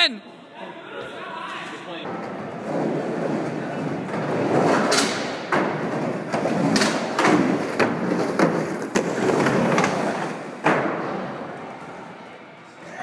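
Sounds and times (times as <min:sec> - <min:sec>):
skateboard wheels rolling on plywood: 0:02.2 - 0:11.0
skateboard clacks and thuds: 0:02.2 - 0:11.1.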